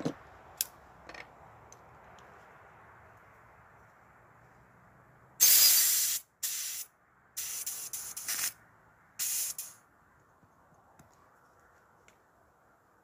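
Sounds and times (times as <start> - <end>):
pressurised gas hissing: 5.4 - 8.6.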